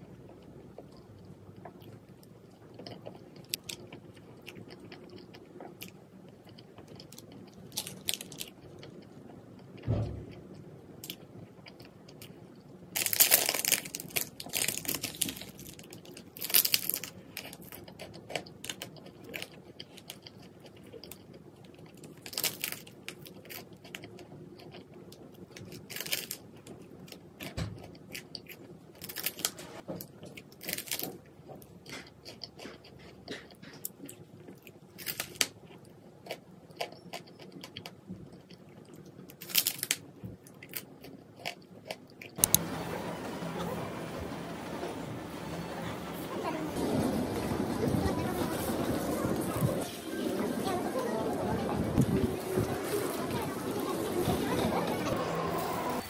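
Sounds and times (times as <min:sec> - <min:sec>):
crackling: 0:00.0 - 0:56.0
chewing and biting: 0:00.3 - 0:09.8, 0:11.0 - 0:29.4, 0:30.2 - 0:42.4.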